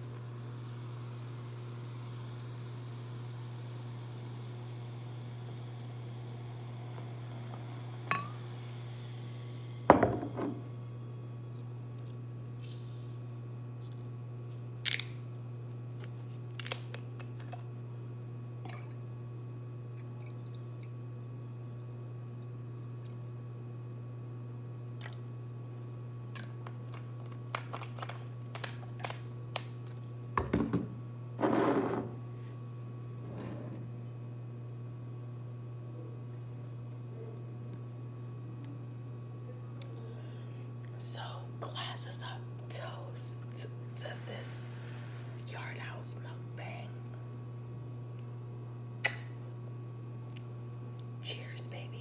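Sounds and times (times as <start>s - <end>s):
steady low hum: 0.0s - 52.0s
glass clinking: 8.1s - 8.4s.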